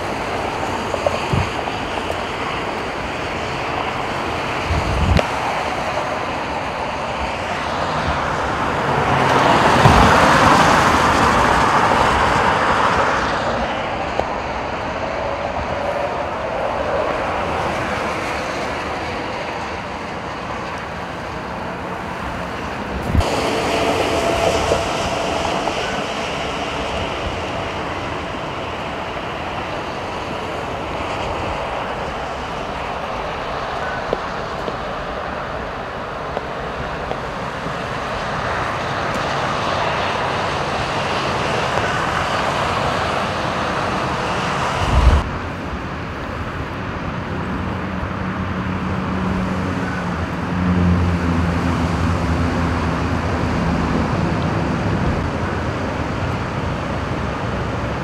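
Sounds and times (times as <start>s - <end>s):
freeway traffic on wet roads: 0.0s - 58.0s
low engine hum: 42.2s - 45.9s.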